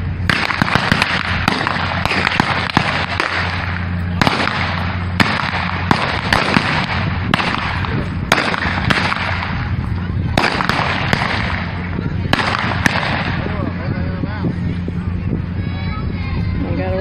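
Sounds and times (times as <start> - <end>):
rushing background noise: 0.0 - 17.0
blank gunshots: 0.3 - 9.6, 10.4 - 13.5.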